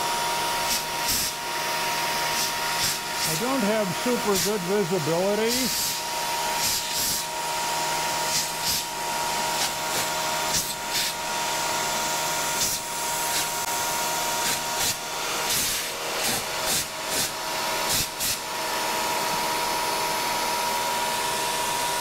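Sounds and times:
end mill cutting aluminum: 0.0 - 22.0
air blow gun hissing: 0.6 - 1.5, 2.2 - 7.5, 8.2 - 11.3, 12.5 - 13.6, 14.4 - 19.8.

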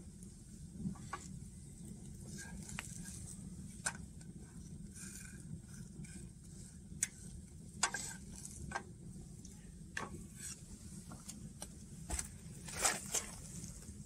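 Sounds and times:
spatula scraping frying pan: 7.1 - 8.8.

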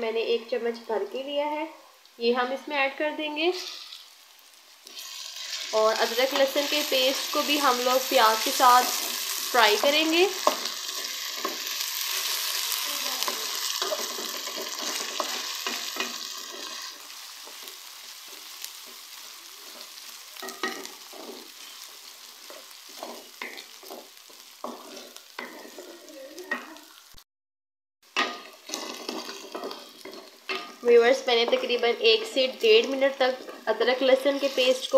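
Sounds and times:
onions sizzling in hot oil: 0.0 - 27.2, 28.1 - 34.9
spatula scraping pan: 4.8 - 26.8, 28.2 - 34.9.

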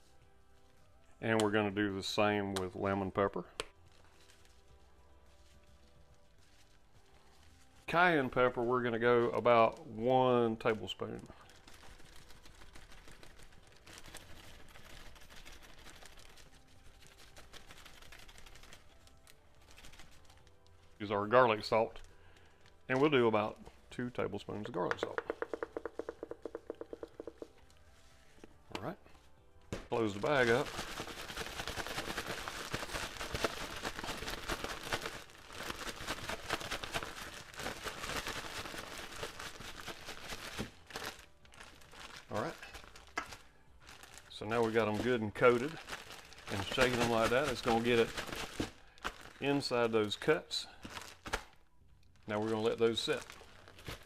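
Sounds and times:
spice pattering onto plastic bag: 2.5 - 23.7, 24.7 - 27.8, 29.7 - 51.6, 52.2 - 54.0
spice bottle shaking: 11.6 - 20.3, 24.9 - 27.5, 30.0 - 40.9, 44.6 - 49.6.

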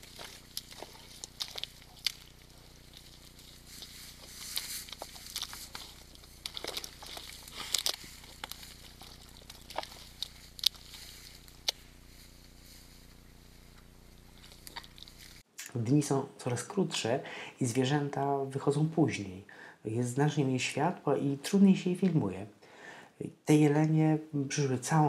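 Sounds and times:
twigs cracking and rustling: 0.0 - 15.4
steady faint hiss: 0.0 - 25.0.

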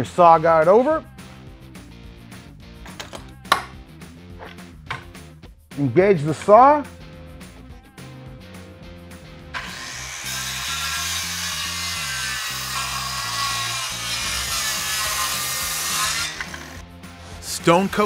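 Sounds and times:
background music: 0.0 - 18.0
circular saw cutting board: 9.5 - 17.4.

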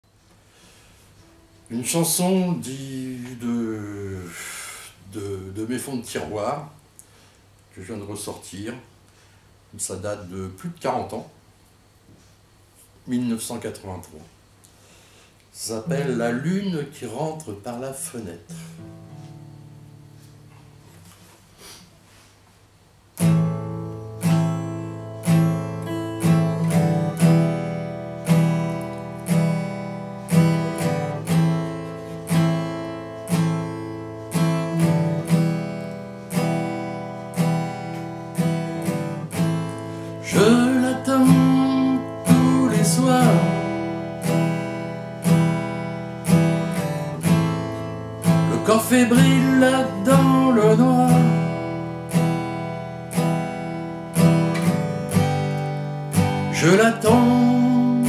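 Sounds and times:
acoustic guitar strumming chords: 0.6 - 6.4, 15.7 - 17.0, 18.0 - 21.3, 23.2 - 58.0.

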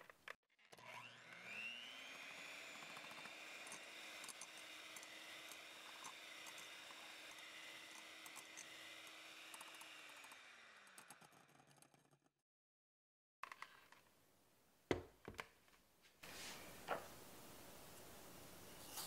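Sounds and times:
electric hand mixer running: 0.6 - 11.8.

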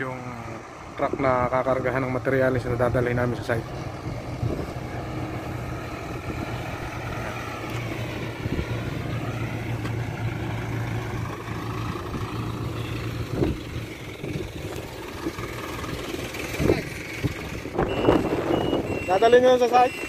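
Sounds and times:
truck engine humming: 0.0 - 20.0
higher whine shifting pitch: 17.6 - 20.0.

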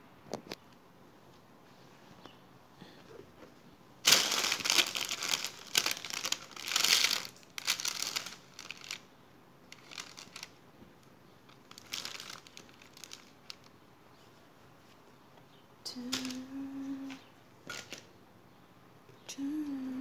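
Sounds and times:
towel rustling: 4.1 - 9.0.

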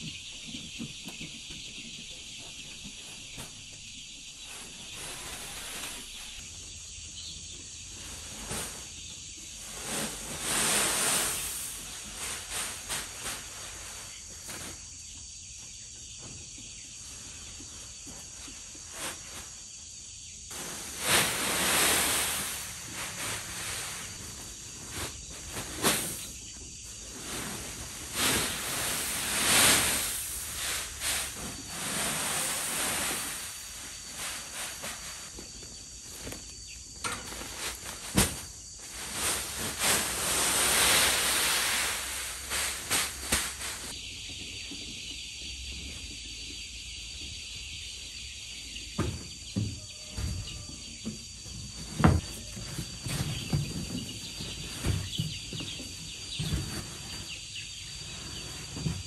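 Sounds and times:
insects chirring: 1.8 - 59.0
rice husks pouring onto concrete: 10.1 - 12.5, 20.5 - 24.2, 25.8 - 26.2, 27.3 - 34.8, 38.8 - 43.9.

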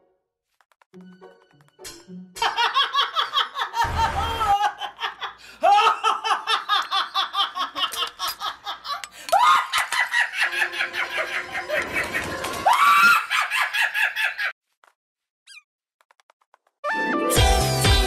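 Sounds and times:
woman laughing hard: 2.4 - 12.4, 13.0 - 14.5.

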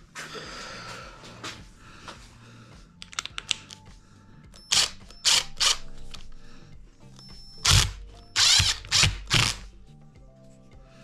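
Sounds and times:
impact driver driving screw into wood: 4.7 - 5.8, 7.6 - 9.6.

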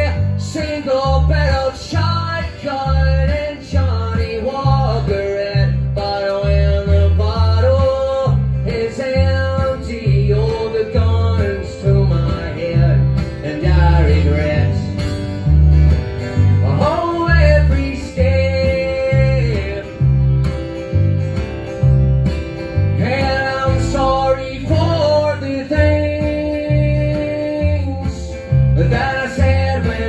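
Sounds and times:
plucked upright bass: 0.0 - 30.0
strummed acoustic guitar: 0.0 - 30.0.

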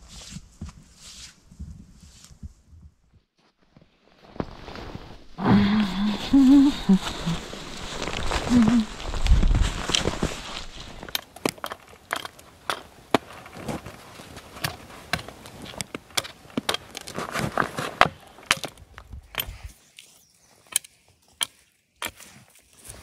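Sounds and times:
rustling: 0.0 - 20.7
twigs cracking and snapping: 7.0 - 20.1.

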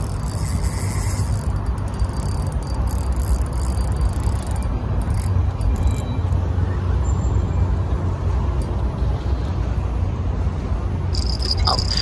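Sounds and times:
fishing reel gears whirring: 0.0 - 6.7, 11.1 - 12.0.

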